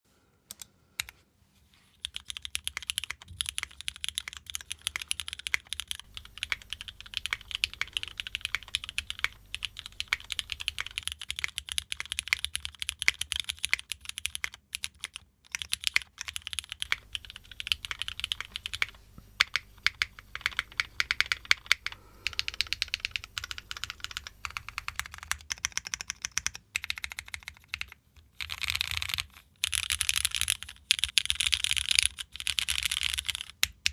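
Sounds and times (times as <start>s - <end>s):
mechanical keyboard typing: 2.0s - 33.9s.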